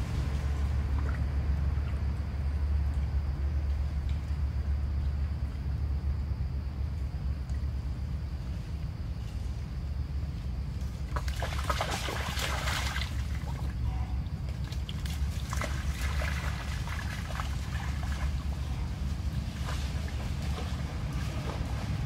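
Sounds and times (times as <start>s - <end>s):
wind rumble on microphone: 0.0s - 22.0s
muddy water splashing: 10.8s - 22.0s.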